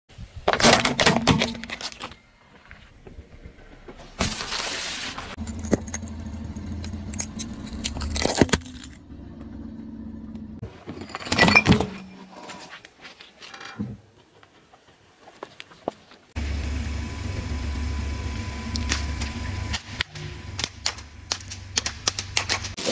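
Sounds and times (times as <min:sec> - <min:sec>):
car engine running low: 0:05.4 - 0:10.6, 0:16.4 - 0:22.0
sharp crack: 0:18.7 - 0:22.9.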